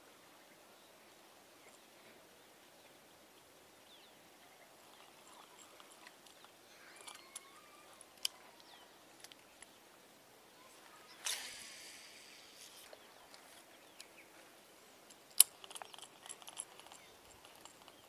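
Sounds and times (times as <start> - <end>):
small clicks: 4.8 - 9.7, 15.1 - 18.0.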